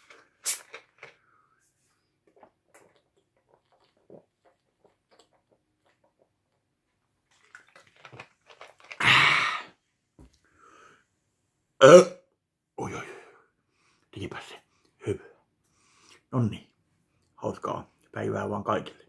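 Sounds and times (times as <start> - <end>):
bottle cap fizz: 0.4 - 0.9
man gulping and swallowing: 2.0 - 10.4
loud burp: 9.0 - 9.7, 11.8 - 12.3.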